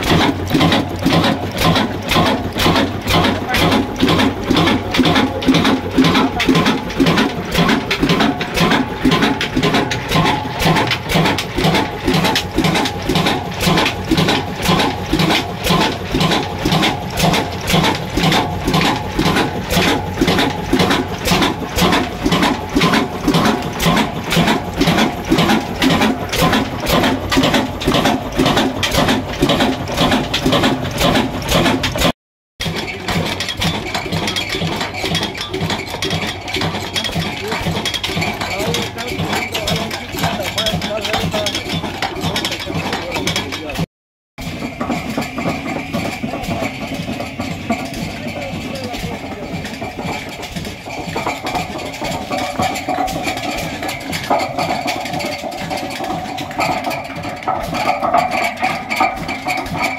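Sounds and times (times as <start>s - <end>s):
metal linkage clanking: 0.0s - 43.8s, 44.4s - 59.9s
stationary diesel engine running: 0.0s - 59.9s.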